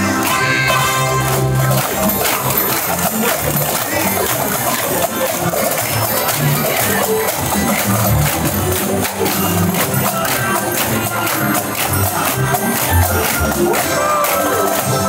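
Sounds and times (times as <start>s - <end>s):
drum and percussion beat: 0.0s - 15.0s
parade marching music: 0.0s - 15.0s.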